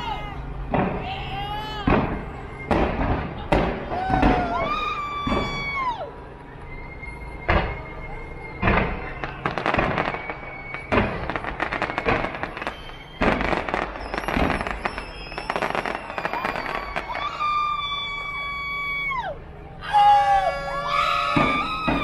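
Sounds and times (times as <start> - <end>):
fireworks bangs: 0.0 - 19.2, 20.0 - 22.0
fireworks crackling: 0.0 - 19.4, 20.0 - 22.0
thin whistling tones: 2.2 - 3.1, 6.3 - 18.3.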